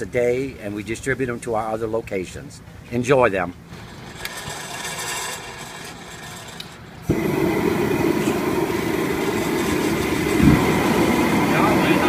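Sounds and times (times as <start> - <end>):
gas burner roaring: 3.7 - 12.0.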